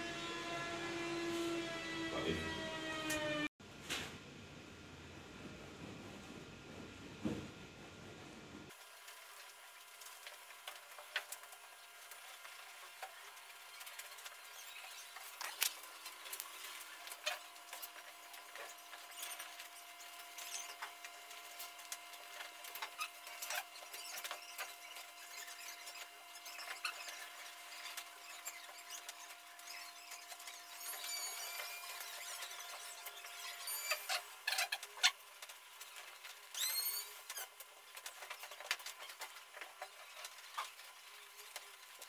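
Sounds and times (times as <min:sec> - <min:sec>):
small crackles and ticks: 0:08.7 - 0:42.0.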